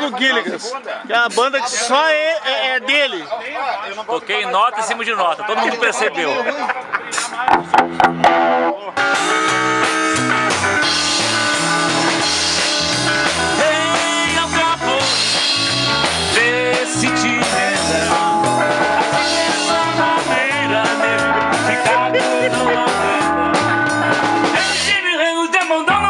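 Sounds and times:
drums: 6.9 - 26.0
electric bass: 7.2 - 25.0
electric guitar: 7.5 - 25.0
person singing: 13.5 - 15.4, 16.3 - 18.4, 19.0 - 26.0.

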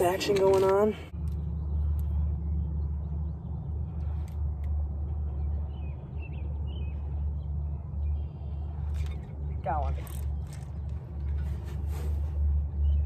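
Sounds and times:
low microphone rumble: 0.9 - 13.0.

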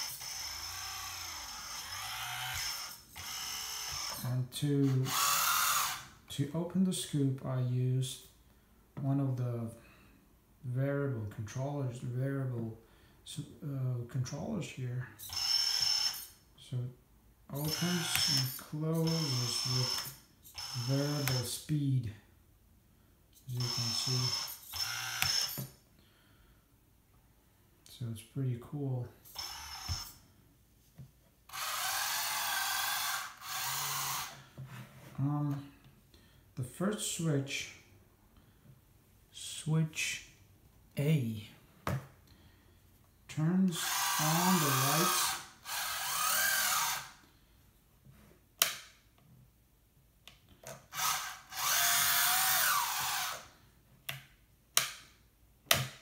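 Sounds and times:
toy loader motors whirring: 0.0 - 6.1, 15.2 - 16.4, 17.6 - 21.6, 23.4 - 25.8, 29.2 - 30.2, 31.5 - 34.4, 43.7 - 47.2, 50.8 - 53.6.

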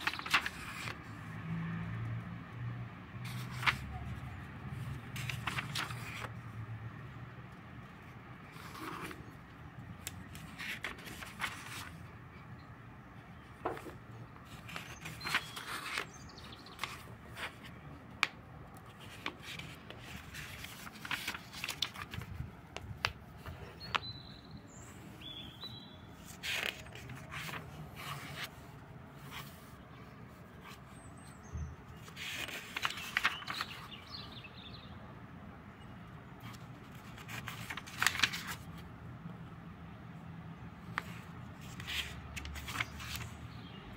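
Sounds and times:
notebook pages rustling: 0.0 - 1.2, 3.2 - 6.5, 7.9 - 12.1, 13.4 - 24.2, 25.2 - 29.8, 30.4 - 31.3, 31.9 - 34.1, 36.4 - 38.9, 40.8 - 43.5.

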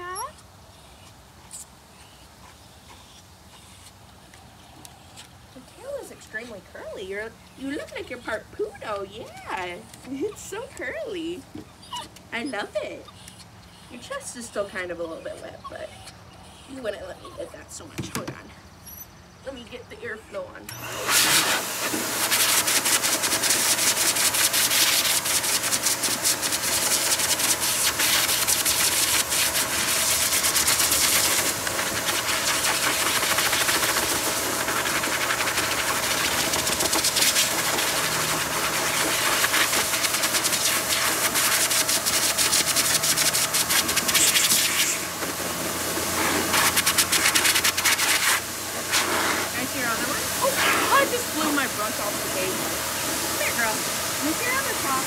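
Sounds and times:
faint motor hum: 1.9 - 55.0
blow dryer air rushing: 20.7 - 55.0.

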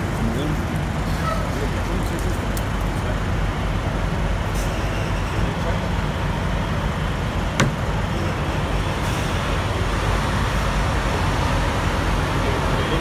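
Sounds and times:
diesel truck engines idling: 0.0 - 13.0.

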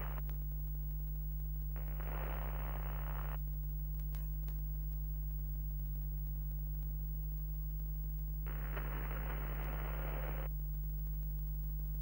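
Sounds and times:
static hiss: 0.0 - 12.0
steady low electrical hum: 0.0 - 12.0
faint clicks: 1.7 - 7.4, 8.1 - 12.0.

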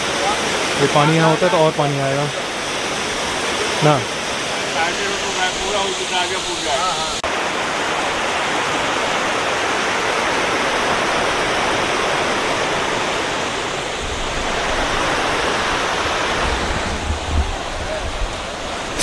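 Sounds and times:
river pouring over rocks: 0.0 - 19.0
wind buffeting microphone: 13.6 - 19.0.

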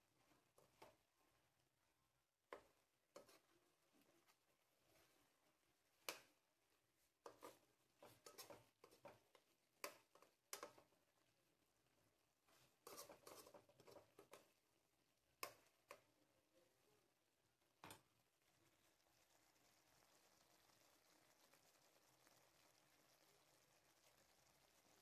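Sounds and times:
metal spoon scraping a wok: 7.3 - 9.1, 12.8 - 14.4.

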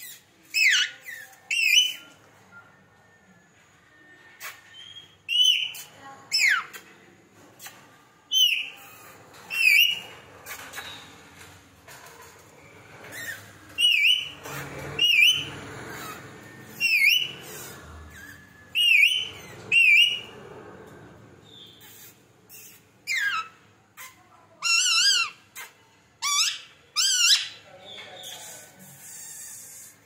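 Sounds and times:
parakeet shrill whistled calls: 13.1 - 14.4, 15.0 - 20.3.

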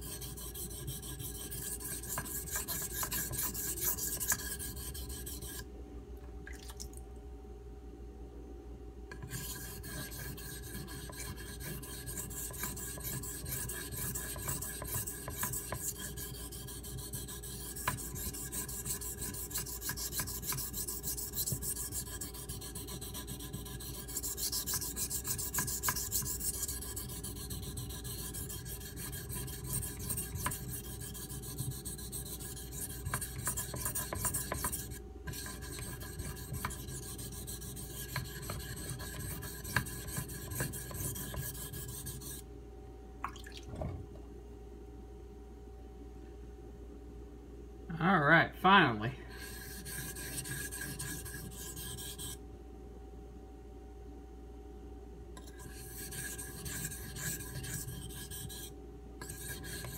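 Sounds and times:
knife scraping on whetstone: 0.0 - 5.6, 9.1 - 42.4, 49.3 - 52.4, 55.4 - 59.9.

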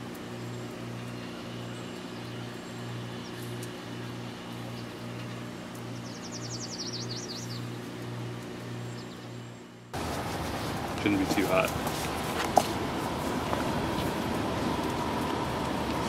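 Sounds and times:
rotisserie motor humming: 0.0 - 16.0
bird trilling: 1.0 - 7.8
wood fire crackling: 9.9 - 16.0.

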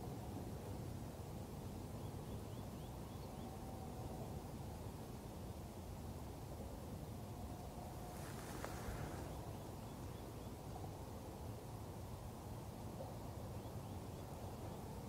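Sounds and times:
low rumbling outdoor hiss: 0.0 - 15.0
brief rustle: 8.1 - 9.3.

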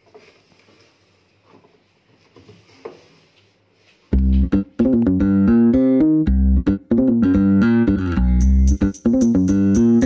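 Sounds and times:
cloth rubbing inside washer tub: 0.0 - 4.4
soft scuff: 0.0 - 4.5.

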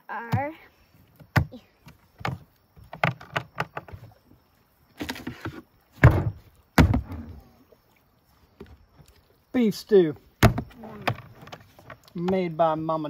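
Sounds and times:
containers knocking and clunking: 1.2 - 4.2, 5.0 - 7.3, 10.4 - 12.6.

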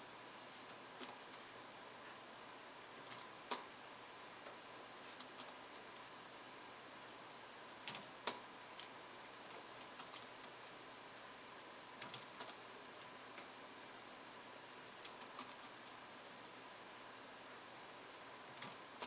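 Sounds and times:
keyboard and mouse clicks: 0.4 - 1.4, 3.1 - 3.7, 5.2 - 5.9, 7.9 - 8.9, 9.5 - 10.7, 12.0 - 12.6, 15.0 - 15.9, 18.6 - 19.0.

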